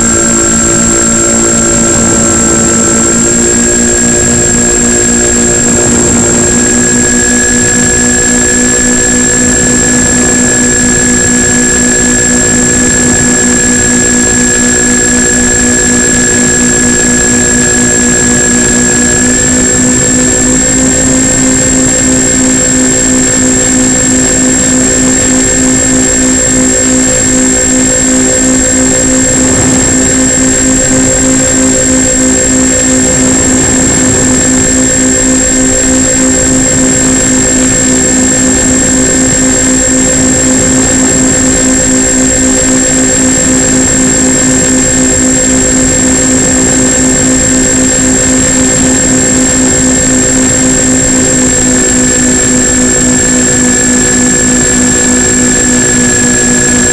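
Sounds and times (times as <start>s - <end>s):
high-pitched whine: 0.0s - 56.9s
model plane motors droning: 0.0s - 56.9s.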